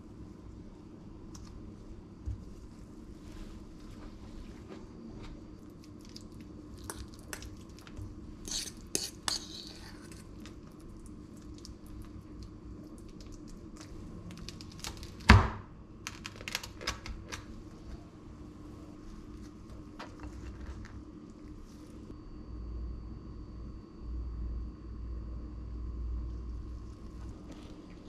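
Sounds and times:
utensil scraping metal bowl: 0:08.4 - 0:10.3.

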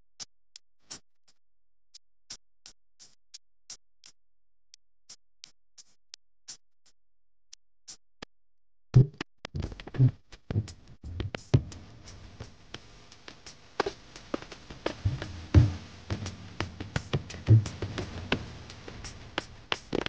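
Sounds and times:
drum music with heavy low hits: 0:10.6 - 0:20.0.

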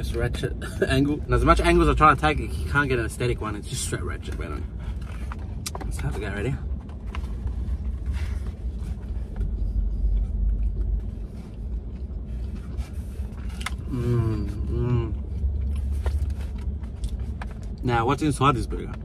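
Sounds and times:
low rumble inside car: 0:00.0 - 0:19.0
man chewing food: 0:04.3 - 0:05.8, 0:06.7 - 0:17.8
man humming mmm: 0:13.8 - 0:15.2.

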